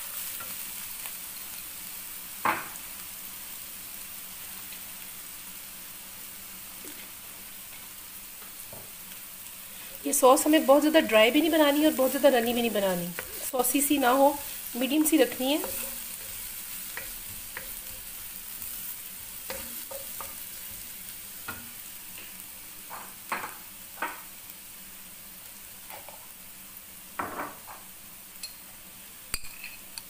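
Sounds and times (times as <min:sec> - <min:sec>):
onion sizzling in oil: 0:00.0 - 0:30.0
spatula scraping and tapping pan: 0:11.9 - 0:18.2, 0:19.3 - 0:20.8, 0:21.4 - 0:24.2, 0:29.3 - 0:30.0.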